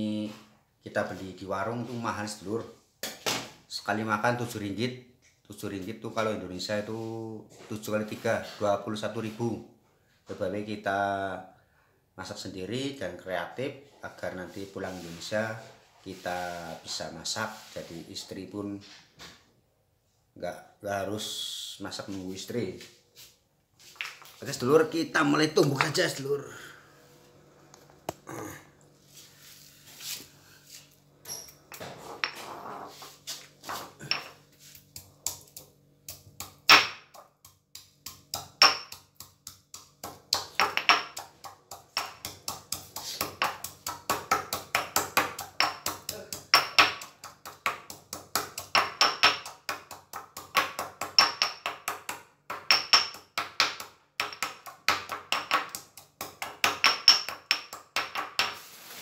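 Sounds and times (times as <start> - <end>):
pestle pounding in mortar: 33.9 - 58.6.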